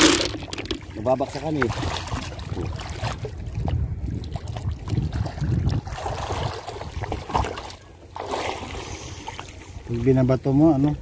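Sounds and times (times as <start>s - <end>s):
water sloshing and splashing: 0.0s - 11.0s
wind on microphone: 1.4s - 7.6s.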